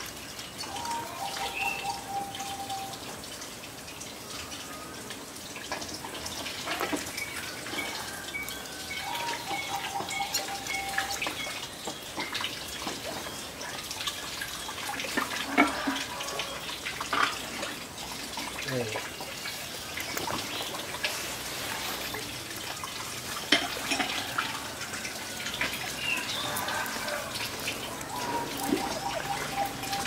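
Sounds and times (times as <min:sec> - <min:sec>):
tap water splashing into basin: 0:22.6 - 0:30.0.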